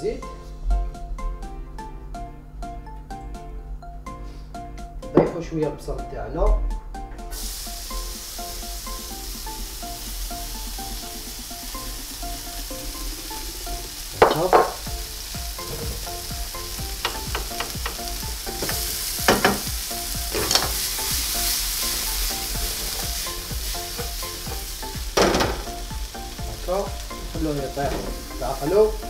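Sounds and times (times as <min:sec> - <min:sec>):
onion sizzling in hot oil: 0:07.3 - 0:29.0.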